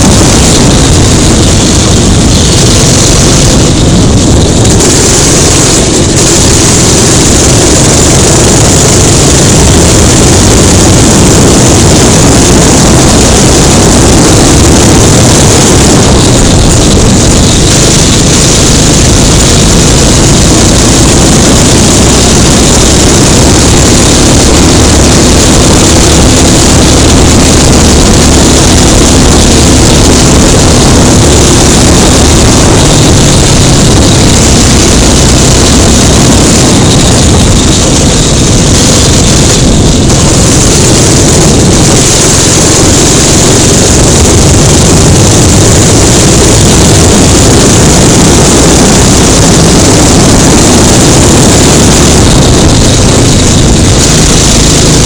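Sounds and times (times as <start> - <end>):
kart engine running flat out: 0.0 - 55.0.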